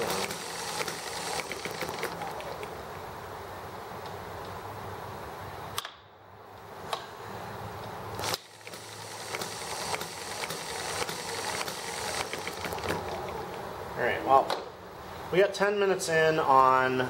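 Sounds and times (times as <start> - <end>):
small gas engine running: 0.0 - 3.0, 8.2 - 13.6.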